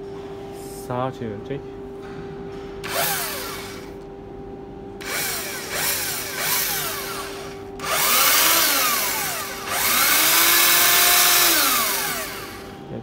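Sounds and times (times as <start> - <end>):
steady hum: 0.0 - 13.0
electric drill motor winding down: 2.8 - 4.0, 5.0 - 12.8.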